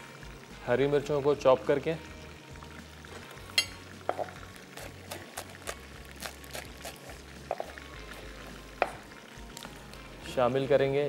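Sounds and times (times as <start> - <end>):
oil sizzling in a pan: 0.0 - 11.0.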